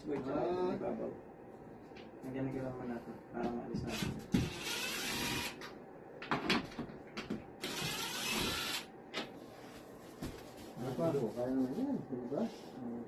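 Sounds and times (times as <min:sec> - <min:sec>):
cordless drill running: 0:03.9 - 0:05.6, 0:07.6 - 0:08.9.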